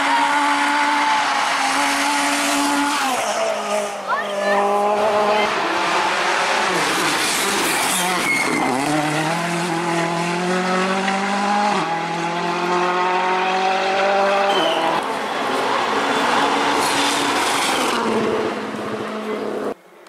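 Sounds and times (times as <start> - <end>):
rally car engine accelerating: 0.0 - 19.8.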